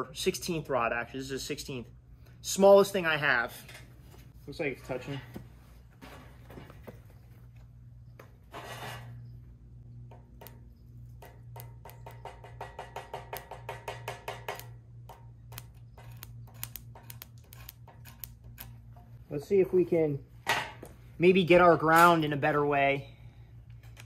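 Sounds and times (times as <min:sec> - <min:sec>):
welding rod scratching on steel: 0:08.5 - 0:09.4, 0:10.2 - 0:19.2.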